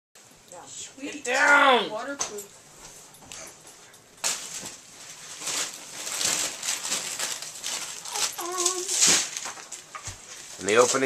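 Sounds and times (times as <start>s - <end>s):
wrapping paper rustling: 4.2s - 11.0s.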